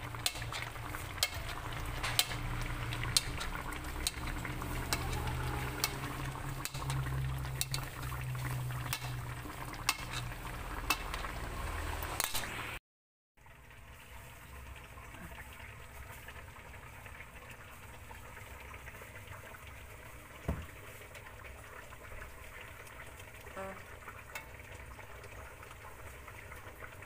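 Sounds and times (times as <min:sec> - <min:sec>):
liquid bubbling with sharp pops: 0:00.0 - 0:11.3.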